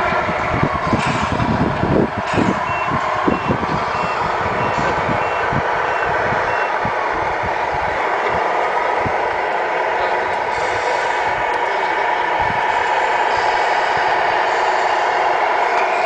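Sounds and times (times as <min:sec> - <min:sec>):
reversing beeper: 0:02.4 - 0:06.9.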